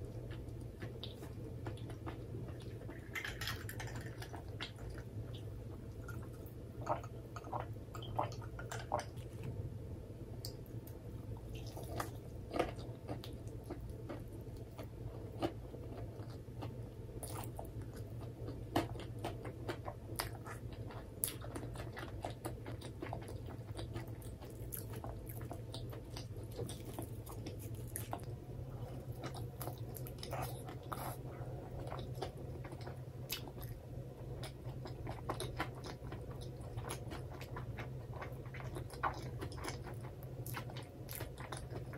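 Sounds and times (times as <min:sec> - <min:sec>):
chewing and biting food: 0:00.1 - 0:09.5, 0:11.4 - 0:41.9.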